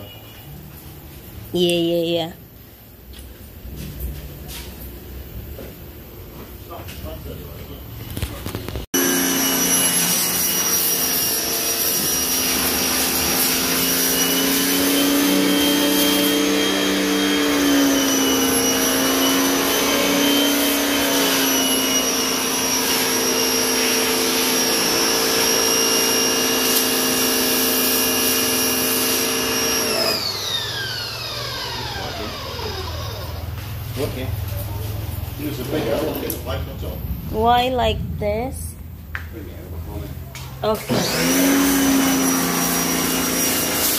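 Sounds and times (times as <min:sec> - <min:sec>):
pressure washer motor whining: 0:08.9 - 0:34.3, 0:40.6 - 0:43.9.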